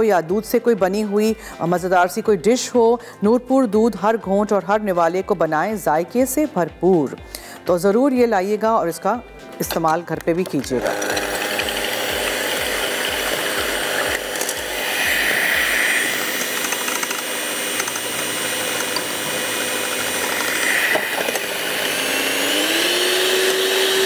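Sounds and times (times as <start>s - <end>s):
electric hand mixer whisking: 10.6s - 24.0s.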